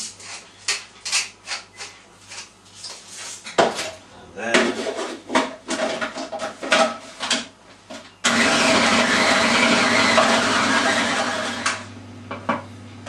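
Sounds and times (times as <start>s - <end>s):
food processor motor chopping: 8.3s - 11.9s.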